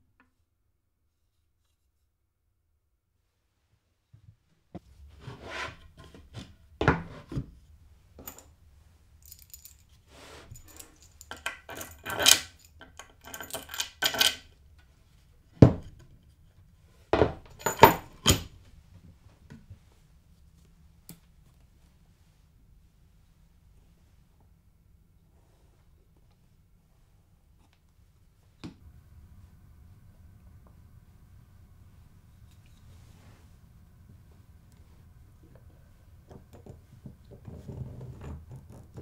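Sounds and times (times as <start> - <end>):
metal parts clinking on wood: 10.6 - 14.5, 17.5 - 18.5.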